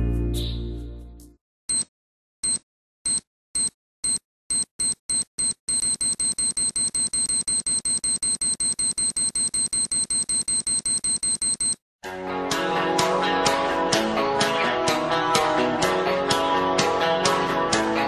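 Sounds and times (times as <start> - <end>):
electronic alarm beeping: 1.7 - 11.8.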